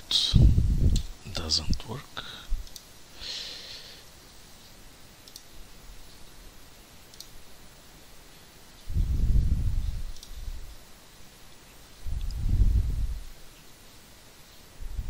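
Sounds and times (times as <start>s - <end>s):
faint background hiss: 0.0s - 15.0s
soft breathy noise: 2.1s - 4.2s
computer mouse clicks: 2.6s - 2.9s, 5.2s - 5.5s, 7.1s - 7.4s, 10.1s - 10.4s.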